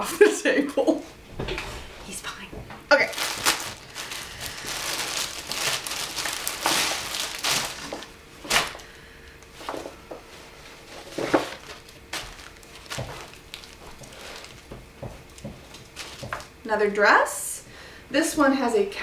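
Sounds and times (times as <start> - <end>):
plastic bag crinkling: 2.9 - 8.9, 10.9 - 16.6.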